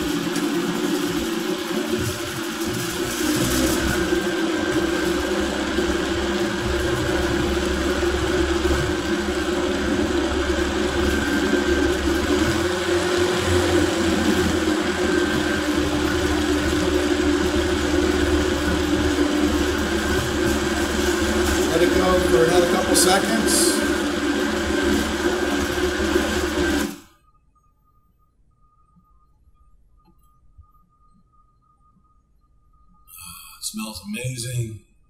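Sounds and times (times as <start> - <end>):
blender motor running: 0.0 - 27.1.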